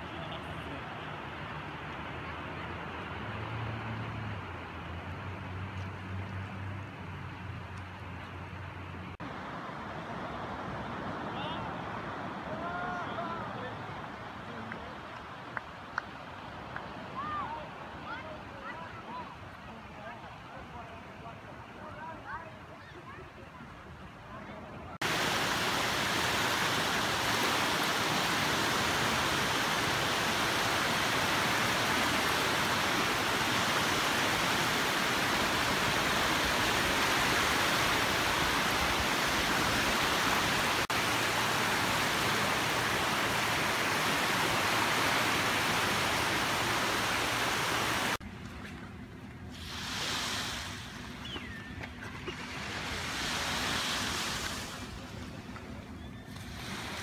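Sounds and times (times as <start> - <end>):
waves breaking on beach: 9.2 - 20.7, 24.5 - 48.2, 49.5 - 51.5, 52.1 - 57.0.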